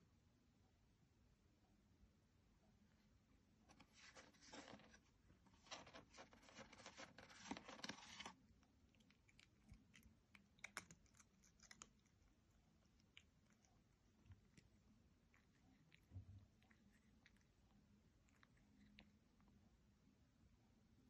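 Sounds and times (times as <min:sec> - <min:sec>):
cat claws scratching plastic: 0:03.7 - 0:08.4.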